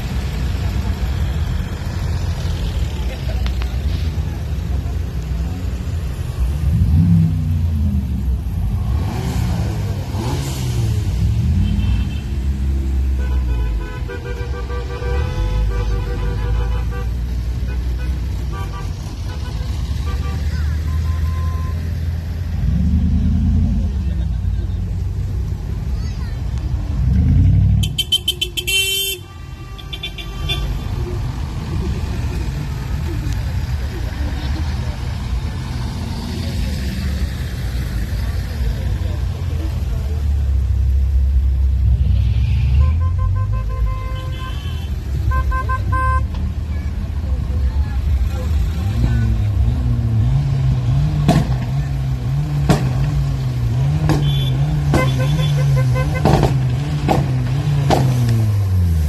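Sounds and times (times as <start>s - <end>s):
cars driving slowly past: 0.0s - 59.0s
car engine revving: 6.3s - 13.1s
car horn toots: 27.8s - 30.9s, 42.7s - 46.4s, 54.1s - 56.4s.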